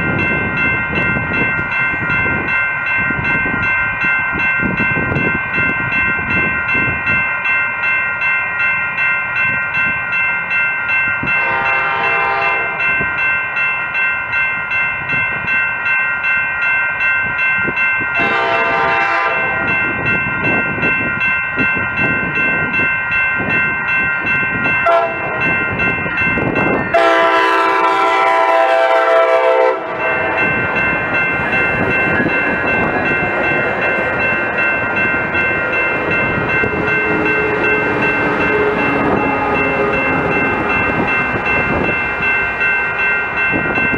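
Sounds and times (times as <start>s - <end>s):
crossing bell ringing: 0.0s - 43.9s
train wheels rumbling on rails: 0.0s - 43.9s
train horn blasts: 11.4s - 12.9s, 18.2s - 19.7s, 24.8s - 25.4s, 26.9s - 30.4s, 37.0s - 41.3s.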